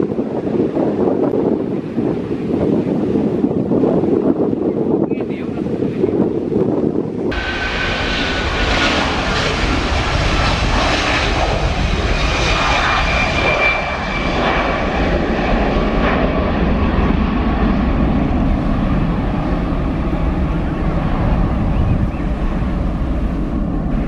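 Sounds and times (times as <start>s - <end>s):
jet engines at takeoff: 0.0s - 24.0s
high engine whine: 7.3s - 24.0s.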